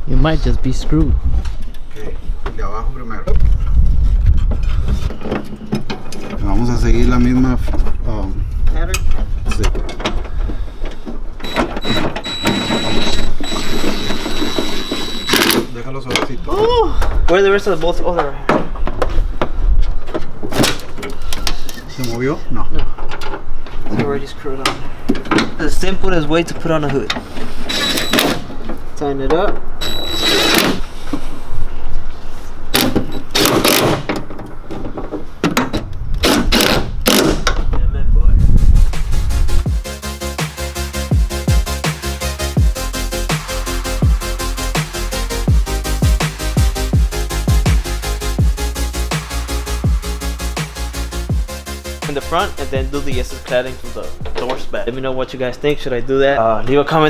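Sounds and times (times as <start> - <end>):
cordless drill motor whining: 11.4 - 15.6, 27.7 - 28.2, 29.8 - 30.8
drill clicks: 27.7 - 28.3.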